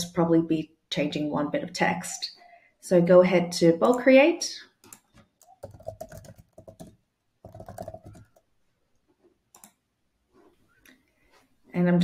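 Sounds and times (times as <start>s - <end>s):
typing on computer keyboard: 4.8s - 8.5s, 9.5s - 9.8s.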